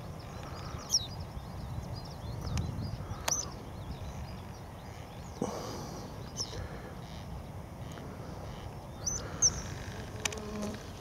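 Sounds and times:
small birds twittering: 0.0s - 11.0s.

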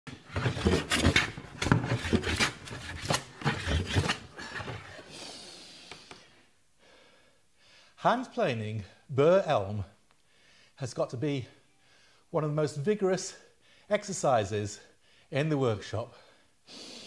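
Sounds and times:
hand plane rasping on wood: 0.1s - 4.9s.

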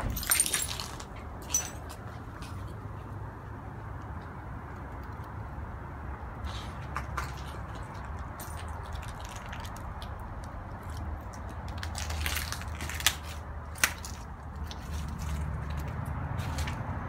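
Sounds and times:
footsteps crunching on dry leaves: 11.8s - 17.0s.

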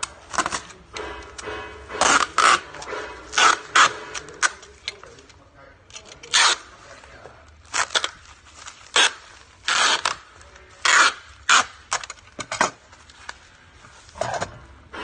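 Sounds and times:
packing tape ripping: 2.0s - 5.3s, 5.9s - 13.4s.

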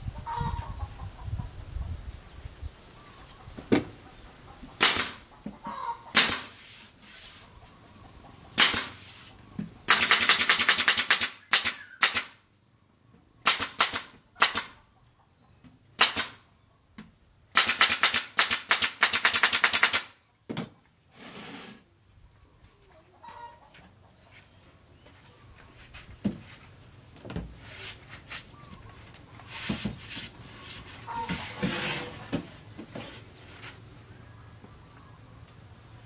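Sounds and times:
nail gun firing into wood: 4.8s - 5.2s, 6.1s - 6.6s, 8.6s - 9.0s, 9.9s - 12.4s, 13.4s - 14.8s, 16.0s - 16.4s, 17.5s - 20.2s.

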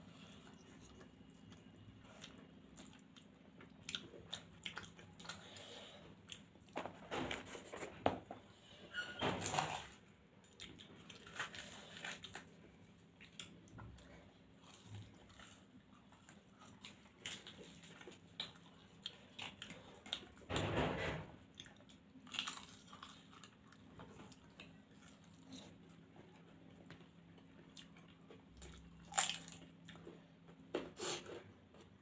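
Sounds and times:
faint steady hum: 0.0s - 32.0s
chewing and biting mouth sounds: 0.2s - 6.8s.

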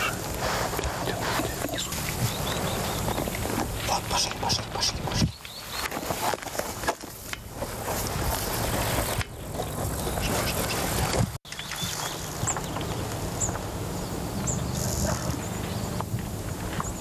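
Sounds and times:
bird chirping: 1.6s - 6.0s, 11.5s - 16.0s.

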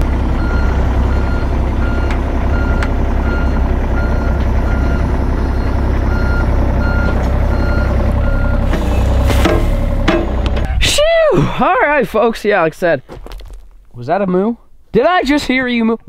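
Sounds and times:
excavator diesel engine running: 0.0s - 11.6s
travel alarm beeping: 0.4s - 8.7s.

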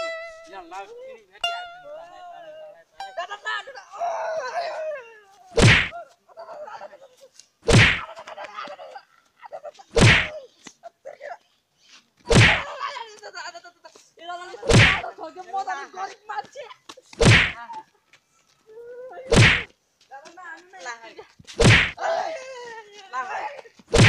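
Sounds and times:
loud stick whacks: 5.6s - 5.9s, 7.7s - 8.1s, 10.0s - 10.3s, 12.3s - 12.7s, 14.7s - 15.0s, 17.2s - 17.6s, 19.3s - 19.7s, 21.6s - 22.0s.

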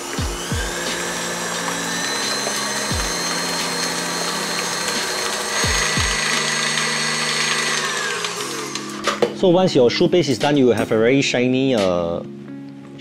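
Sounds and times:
stand mixer motor whine: 0.0s - 9.2s
background music: 0.0s - 13.0s.

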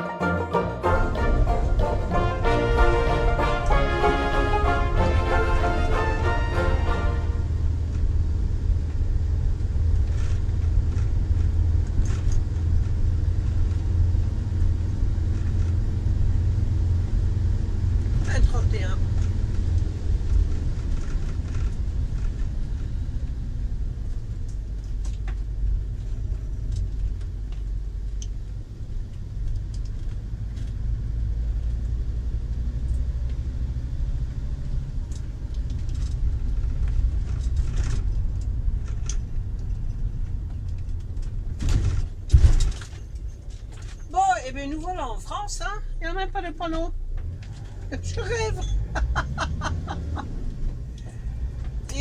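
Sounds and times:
engine and tyres on wet road: 0.9s - 52.0s
faint clicks and rattles: 8.8s - 14.0s, 18.0s - 30.9s, 35.0s - 45.1s.

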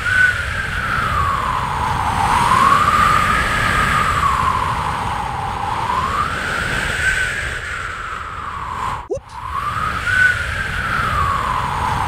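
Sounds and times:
howling wind: 0.0s - 12.0s.

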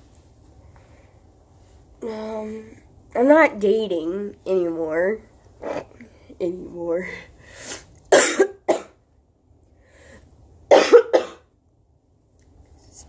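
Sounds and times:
woman coughing: 8.1s - 9.0s, 10.7s - 11.5s.

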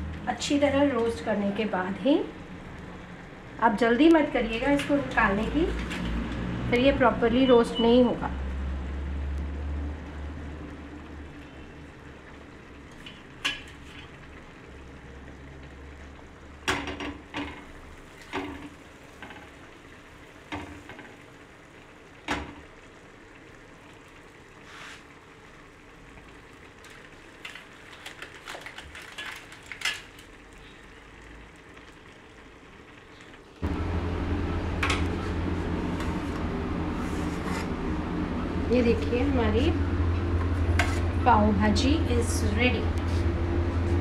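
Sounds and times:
buns sizzling on a hot pan: 0.6s - 33.6s.

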